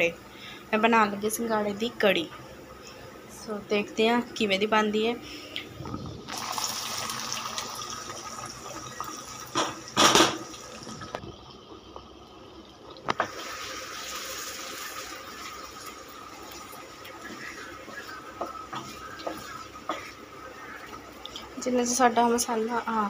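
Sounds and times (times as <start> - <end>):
hot oil sizzling: 6.3 - 22.8.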